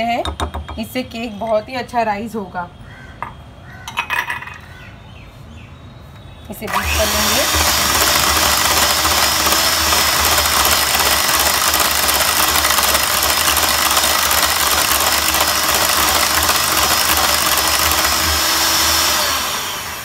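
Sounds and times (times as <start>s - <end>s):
electric hand mixer whisking: 6.7s - 20.0s.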